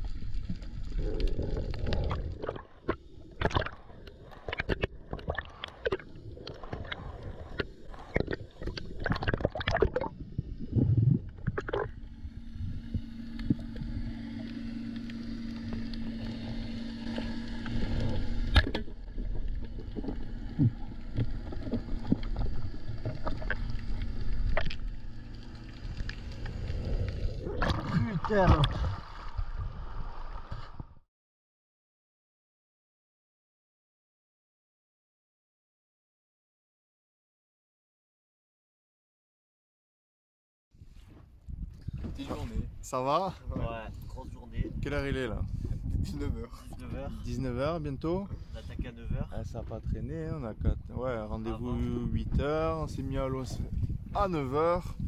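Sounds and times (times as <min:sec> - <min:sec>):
gurgling water: 0:00.0 - 0:31.0
steady low hum: 0:00.1 - 0:30.5
underwater clicks and knocks: 0:01.7 - 0:03.8, 0:11.3 - 0:11.9, 0:18.4 - 0:24.9.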